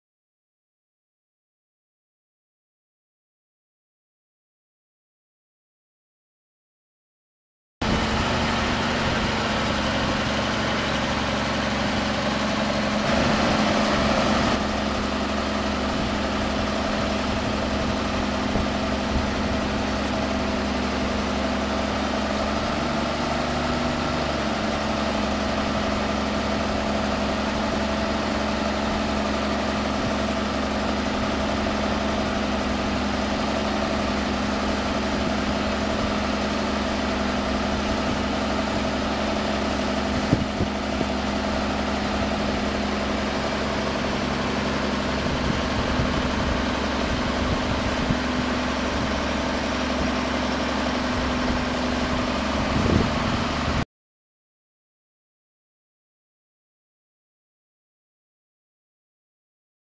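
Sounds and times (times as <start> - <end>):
truck engine idling: 7.8 - 53.8.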